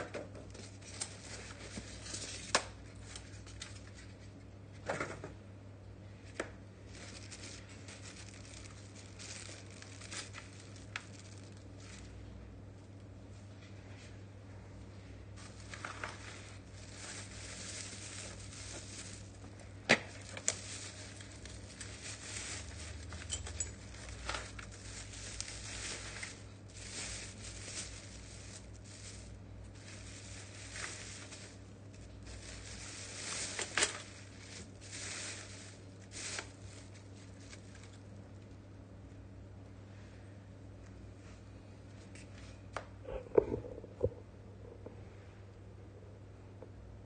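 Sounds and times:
plastic packaging crinkling: 0.5 - 4.3, 6.3 - 12.3, 15.4 - 38.6.

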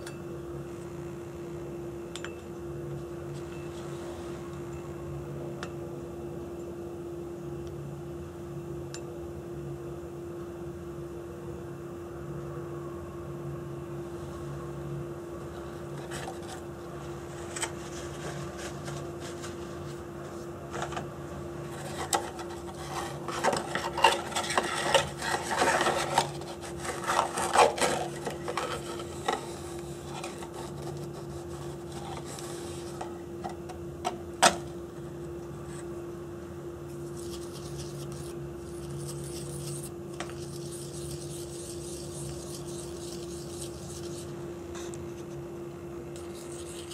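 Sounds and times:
steady low hum: 0.0 - 46.9
dry scraping and rubbing: 15.9 - 21.0, 21.7 - 33.0.

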